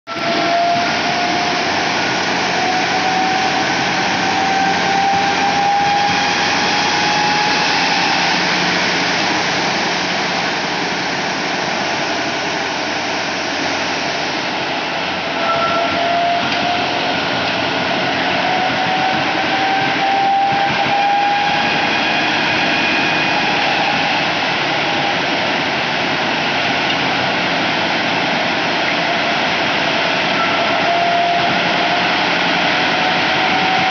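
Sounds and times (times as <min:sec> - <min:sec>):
faint rising whine: 0:00.2 - 0:26.8.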